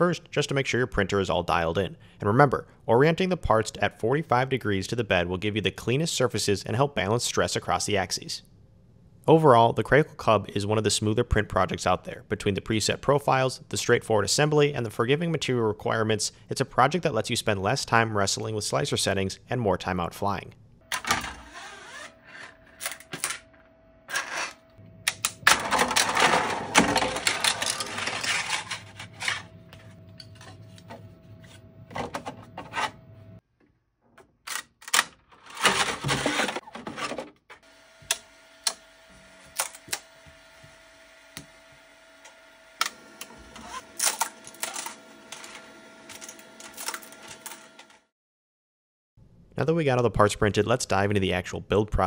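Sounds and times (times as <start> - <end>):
plastic parts clicking and scraping: 24.1 - 31.0.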